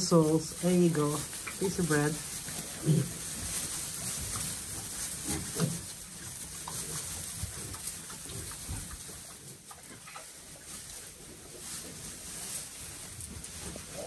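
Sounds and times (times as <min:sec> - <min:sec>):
pigs chewing: 0:00.0 - 0:14.0
pigs grunting: 0:02.6 - 0:03.6.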